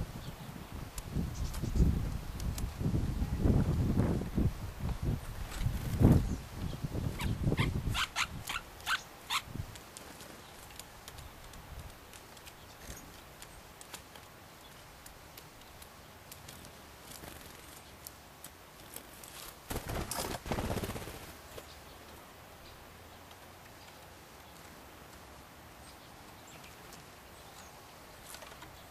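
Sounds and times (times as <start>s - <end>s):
bird wingbeats flurry: 5.3s - 6.3s, 15.6s - 18.1s, 18.8s - 21.8s.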